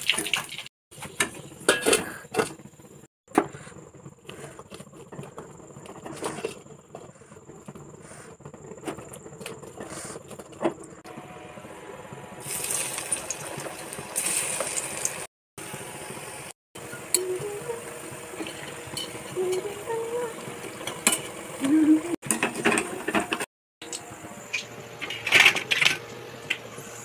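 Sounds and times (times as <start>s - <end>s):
hot oil sizzling: 0.0s - 1.8s, 10.8s - 22.1s.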